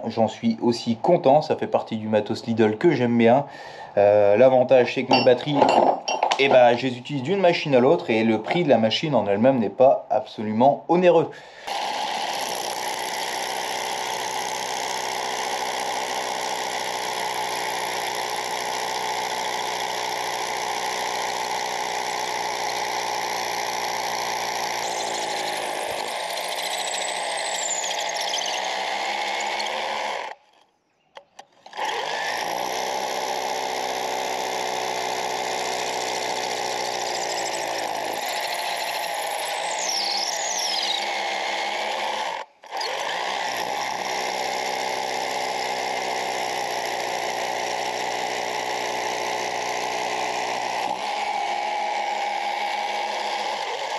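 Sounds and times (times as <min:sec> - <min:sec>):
rotary hammer drilling into wall: 0:11.6 - 0:30.5, 0:31.2 - 0:53.9.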